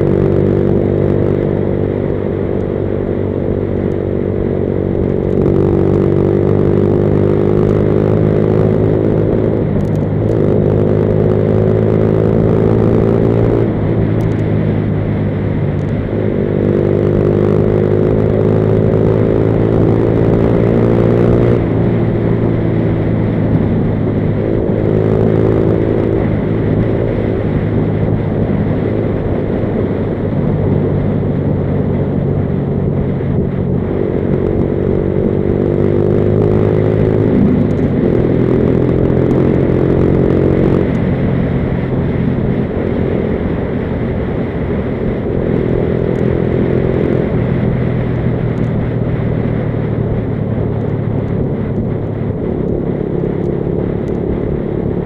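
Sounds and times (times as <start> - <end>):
motorcycle engine running: 0.0 - 55.0.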